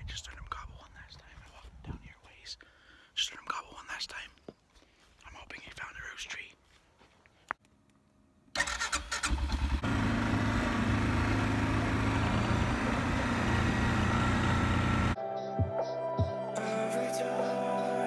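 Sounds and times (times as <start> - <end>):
atv engine starting: 8.5 - 15.2
atv engine running: 8.6 - 15.2.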